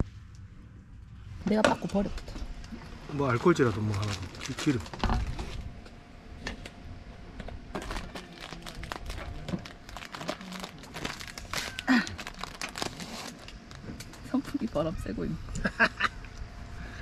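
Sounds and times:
plastic bottles clicking and crinkling: 7.7s - 14.2s.

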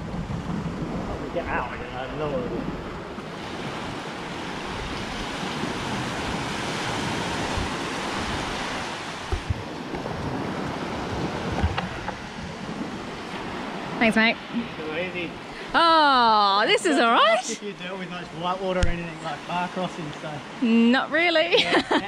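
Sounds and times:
wind bumps on microphone: 0.0s - 15.5s
small waves washing on beach: 0.0s - 22.0s.

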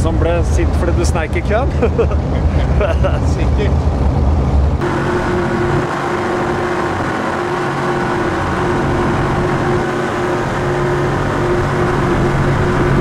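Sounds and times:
powerboat engine drone: 0.0s - 13.0s
rush of wind and water: 0.0s - 13.0s.

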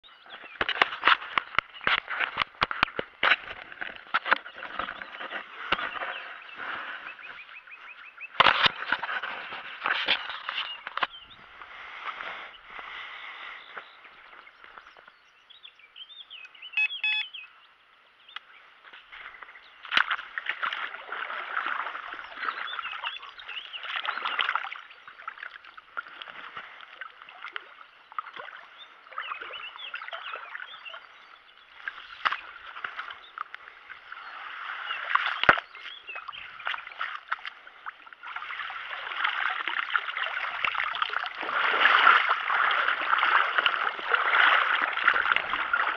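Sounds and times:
net sloshing in water: 19.9s - 23.2s, 23.8s - 31.0s, 34.1s - 45.9s
water streaming off a net: 34.2s - 45.9s.

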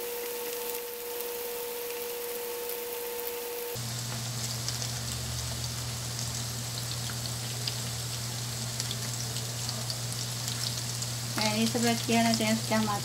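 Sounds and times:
tofu sizzling in hot oil: 0.0s - 13.0s
low steady hum: 3.7s - 13.0s.

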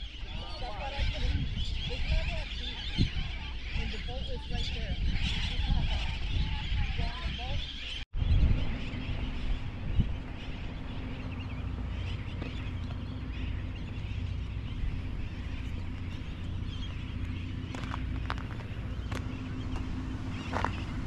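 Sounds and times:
faint bird calls: 0.0s - 21.0s
low motor hum: 8.2s - 21.0s.

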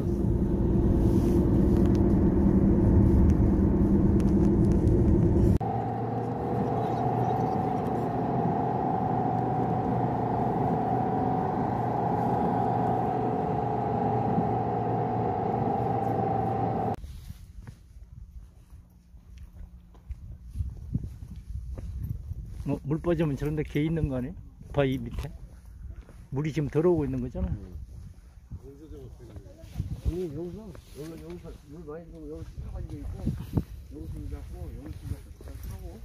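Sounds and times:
car cabin hum: 0.0s - 17.0s
road and tyre rumble: 0.0s - 17.1s.

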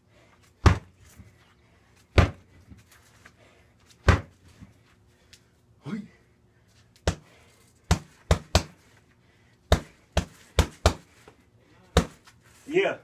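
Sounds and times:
punches thudding on punching bag: 0.6s - 0.9s, 2.1s - 2.5s, 4.0s - 4.4s, 7.0s - 7.3s, 7.9s - 8.8s, 9.7s - 11.1s, 11.9s - 12.3s.

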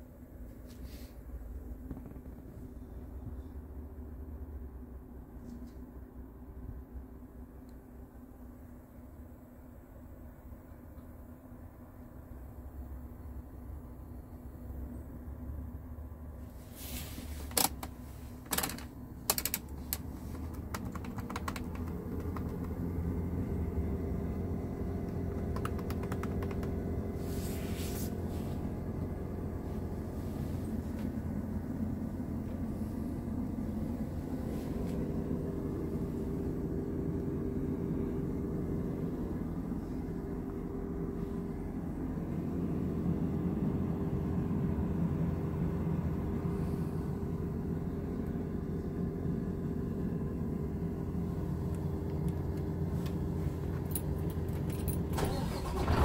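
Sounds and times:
dashboard knobs clicking: 17.5s - 22.9s, 25.0s - 26.8s
truck diesel engine idling: 21.2s - 56.0s.

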